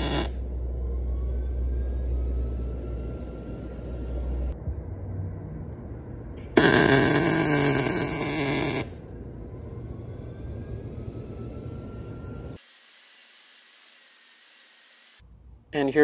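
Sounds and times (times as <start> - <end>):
welder arc crackling: 0.0 - 0.4, 6.6 - 9.0
low steady rumble: 0.0 - 12.6.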